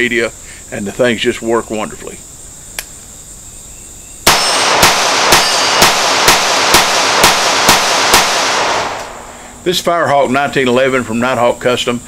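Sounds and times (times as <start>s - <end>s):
pistol shots echoing: 4.2s - 9.4s.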